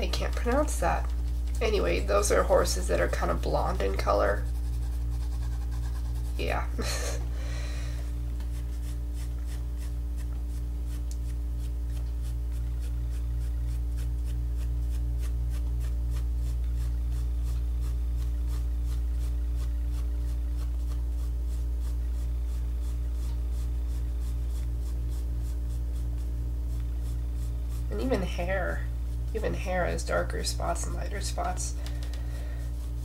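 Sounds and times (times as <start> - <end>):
steady low hum: 0.0 - 33.0
pencil shading on paper: 3.1 - 6.8.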